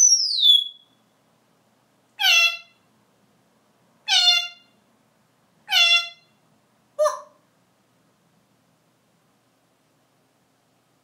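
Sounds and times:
parrot calls: 0.0s - 1.0s, 2.2s - 2.8s, 4.0s - 4.8s, 5.6s - 6.4s, 7.0s - 7.4s.

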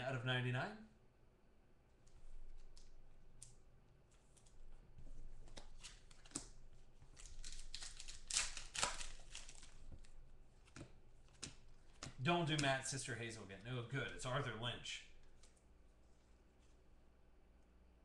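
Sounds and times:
foil wrapper crinkling: 5.5s - 12.6s.

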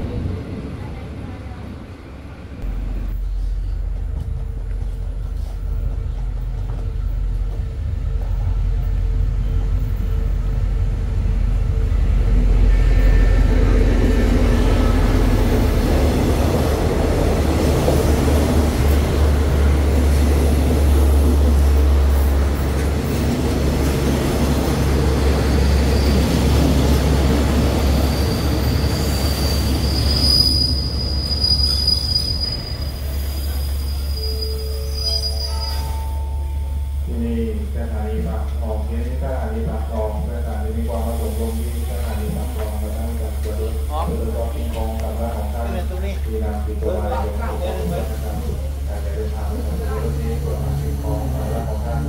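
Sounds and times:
train coaches rumbling on rails: 0.0s - 52.0s
high steady squeal: 27.8s - 36.2s.

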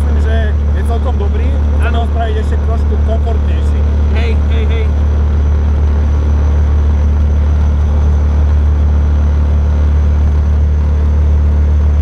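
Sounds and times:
engine low drone: 0.0s - 12.0s
road and wind noise: 0.0s - 12.0s.

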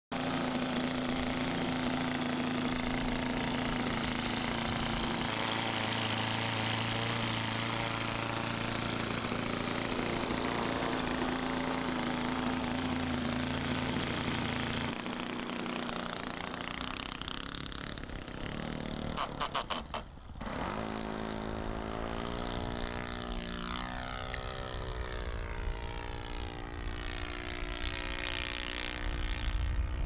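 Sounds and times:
model airplane engine running: 0.1s - 30.0s.

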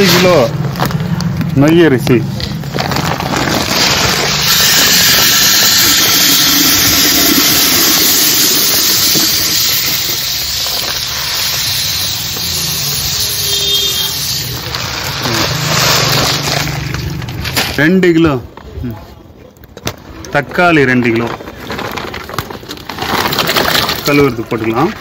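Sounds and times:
rice pouring into a pot: 3.2s - 17.0s.

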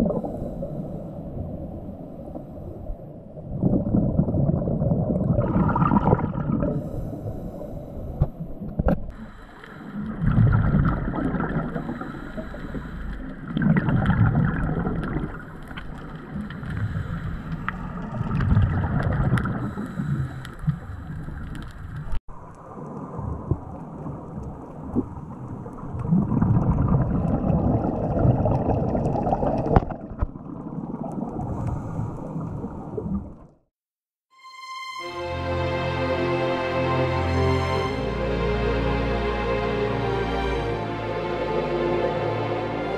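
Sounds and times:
underwater regulator bubbles: 3.4s - 7.0s, 8.2s - 22.2s, 23.1s - 33.5s.

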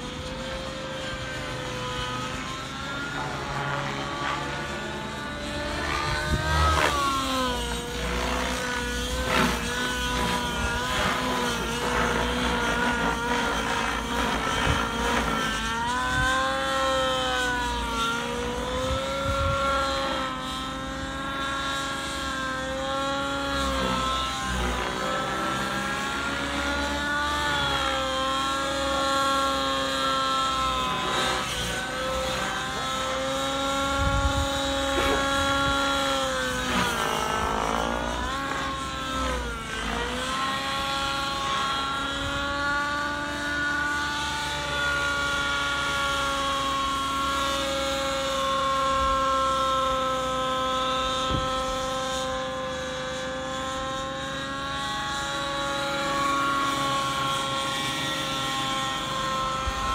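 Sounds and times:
model helicopter engine whine: 0.0s - 59.9s.

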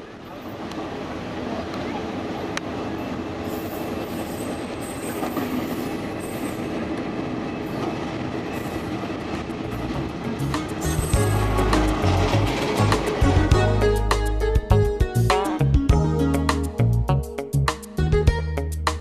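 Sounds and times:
wheels on rails: 0.0s - 13.6s
diesel locomotive engine running: 0.0s - 15.3s.

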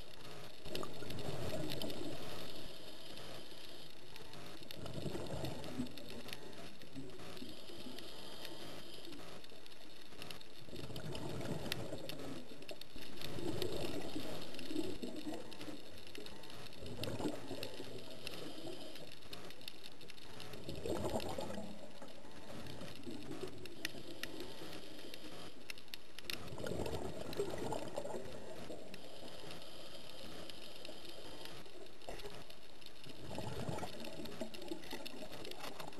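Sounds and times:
faint clicks: 0.0s - 35.9s
steady hiss: 0.0s - 35.9s
regulator bubbles gurgling: 10.7s - 18.8s, 20.6s - 24.5s, 26.4s - 29.1s, 33.0s - 35.9s.

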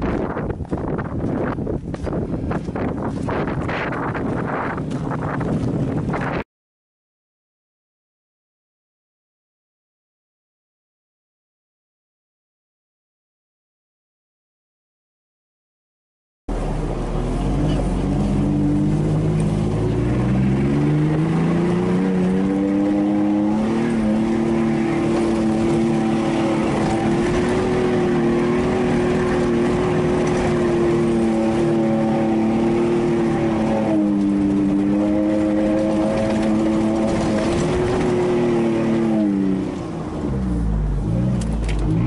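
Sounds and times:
pickup engine revving: 16.5s - 42.0s.

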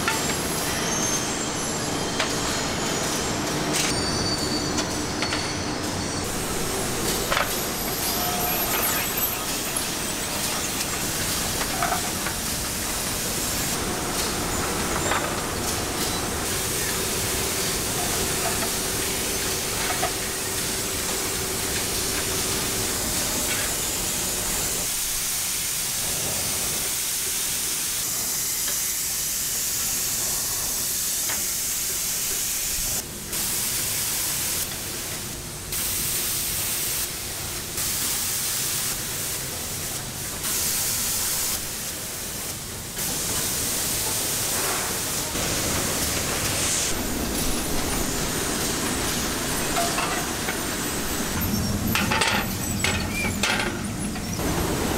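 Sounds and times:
roller conveyor and machinery running: 0.0s - 54.9s
spray guns hissing: 6.2s - 53.2s.

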